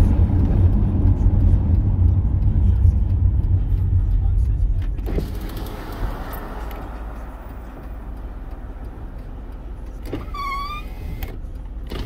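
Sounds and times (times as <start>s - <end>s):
car cabin rumble: 0.0s - 12.0s
high-pitched squeak: 10.1s - 11.2s.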